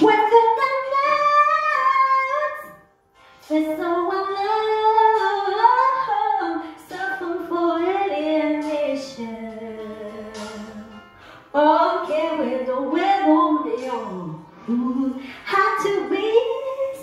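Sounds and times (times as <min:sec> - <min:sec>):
woman breathing in: 0:11.0 - 0:11.5.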